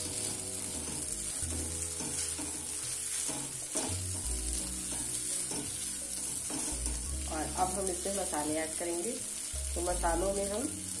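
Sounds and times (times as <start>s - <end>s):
wooden spatula scraping metal pan: 0.0s - 8.1s
hot oil sizzling: 0.0s - 11.0s.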